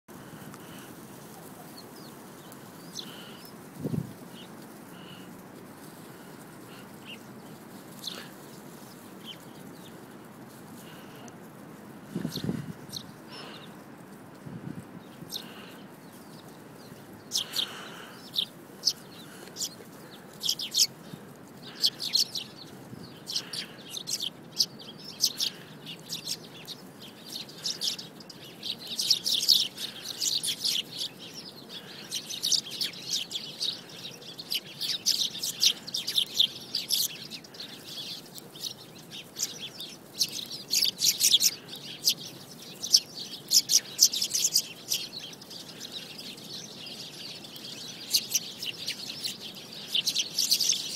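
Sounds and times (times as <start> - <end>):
sparrow chirping: 2.0 - 5.3, 6.2 - 10.0, 12.1 - 13.8, 15.0 - 50.9.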